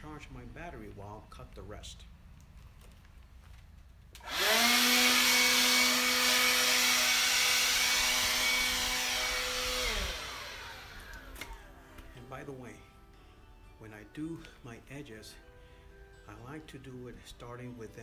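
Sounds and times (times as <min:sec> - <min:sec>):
leaf blower motor whining: 0:04.2 - 0:11.7.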